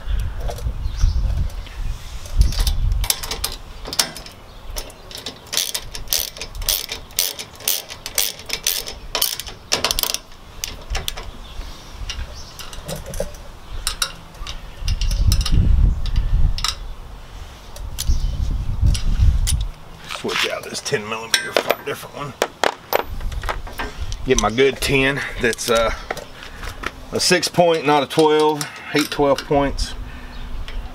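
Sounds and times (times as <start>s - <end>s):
socket ratchet clicking: 2.6s - 11.2s.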